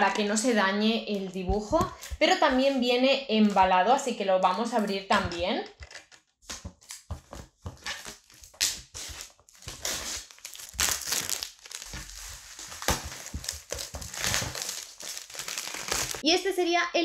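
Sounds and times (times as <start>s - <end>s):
plastic wrap crinkling: 7.0s - 16.2s.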